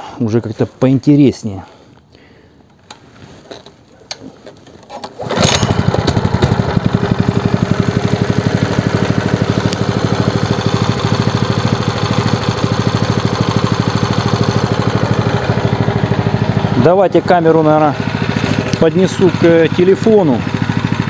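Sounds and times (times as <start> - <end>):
small engine running: 5.1 - 21.0.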